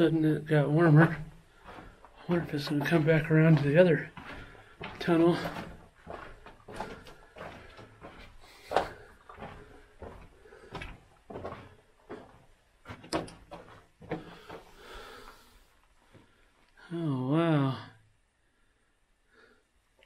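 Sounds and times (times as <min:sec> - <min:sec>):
footsteps crunching on loose rock: 0:00.0 - 0:15.5.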